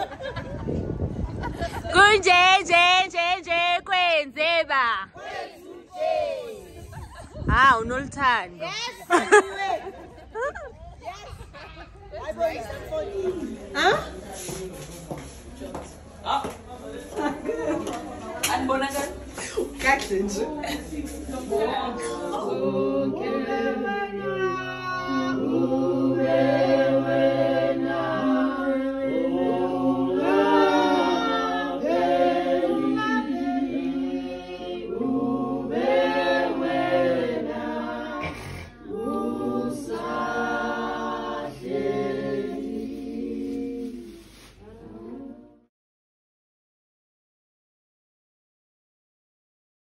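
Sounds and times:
group singing unaccompanied: 5.0s - 7.2s, 19.8s - 45.7s.

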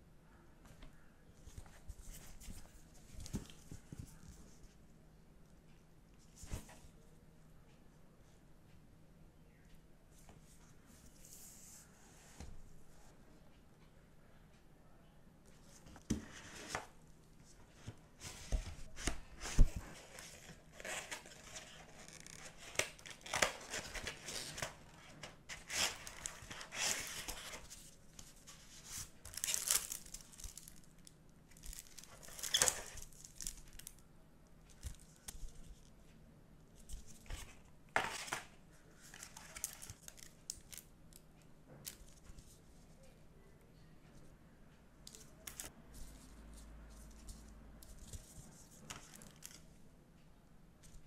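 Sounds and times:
paper and card rustling: 17.7s - 33.9s, 36.8s - 40.9s, 45.1s - 49.7s.

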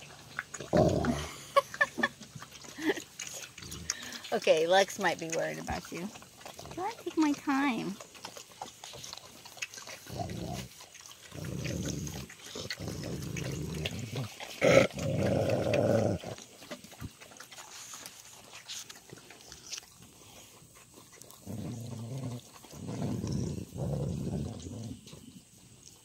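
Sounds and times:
dog growling low: 0.6s - 1.6s, 10.1s - 16.4s, 21.2s - 25.4s.

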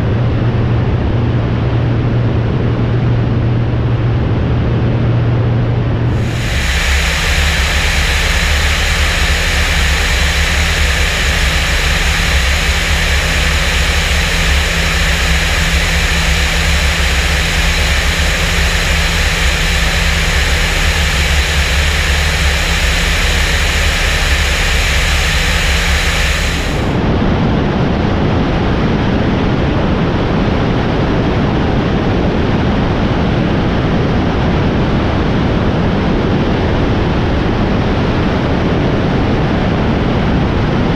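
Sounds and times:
light aircraft engine droning: 6.0s - 27.3s
airflow hiss: 6.1s - 27.0s.

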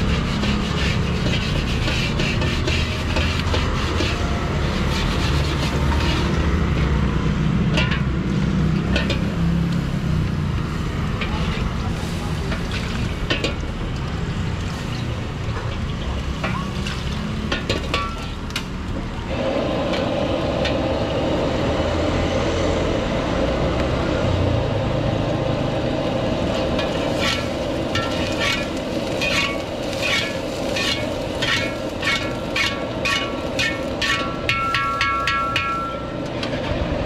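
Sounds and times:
metal ladle scraping a wok: 0.0s - 6.7s, 26.5s - 36.7s
gas burner rumble: 0.0s - 37.0s.

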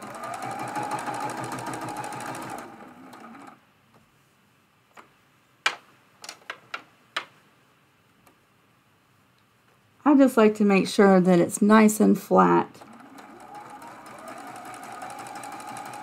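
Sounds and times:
sewing machine stitching: 0.0s - 3.6s, 12.7s - 16.0s.

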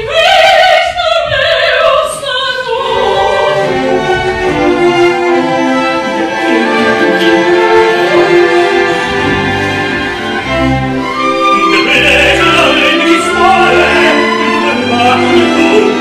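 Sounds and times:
orchestra with bowed strings: 2.8s - 16.0s
person singing: 11.6s - 16.0s.

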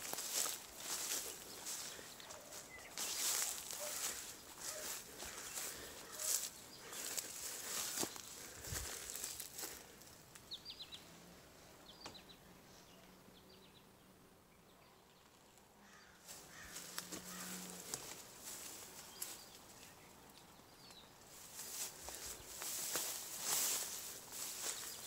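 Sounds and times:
footsteps crunching on debris: 0.0s - 10.0s, 16.2s - 19.5s, 21.3s - 25.0s
small birds chirping: 0.0s - 25.0s.

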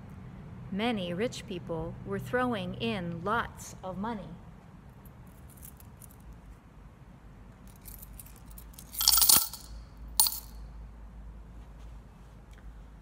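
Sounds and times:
coins clinking into bowl: 7.7s - 10.6s.

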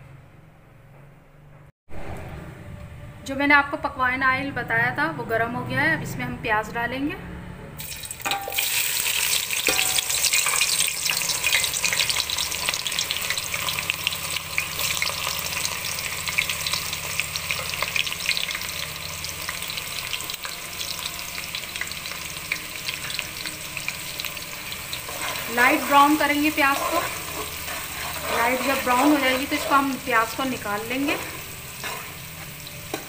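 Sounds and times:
onions sizzling in hot oil: 7.8s - 33.0s.

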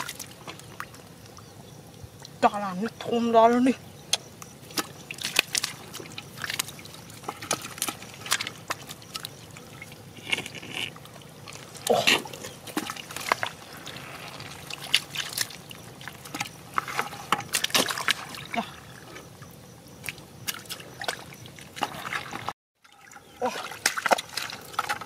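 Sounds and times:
muddy water sloshing: 0.0s - 25.0s.

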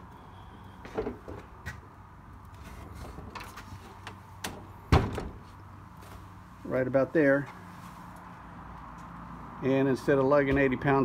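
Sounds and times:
loud thump: 4.9s - 5.4s.

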